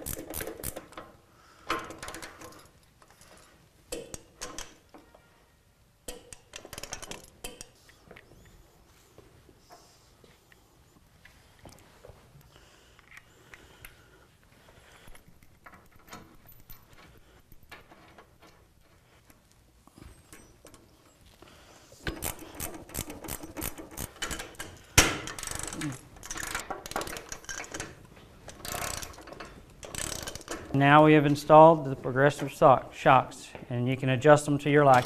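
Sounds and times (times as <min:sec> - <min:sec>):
ratchet wrench clicking: 0:00.0 - 0:00.9, 0:22.1 - 0:24.7, 0:25.3 - 0:27.8, 0:28.6 - 0:30.6
hand tools clicking and tapping: 0:03.9 - 0:05.1, 0:06.0 - 0:08.5, 0:22.0 - 0:27.9.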